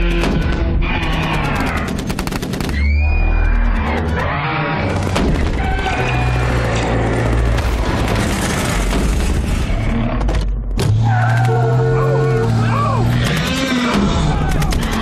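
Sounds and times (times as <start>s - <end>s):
rapid gunfire: 0.0s - 2.9s, 13.1s - 15.0s.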